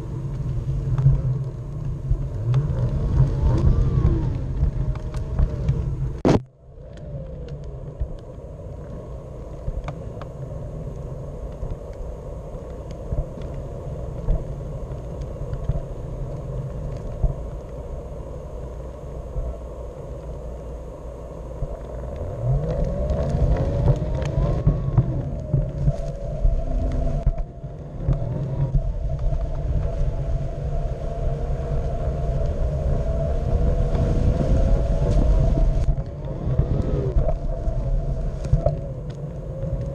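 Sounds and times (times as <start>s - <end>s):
electric motor whine: 18.7s - 30.7s.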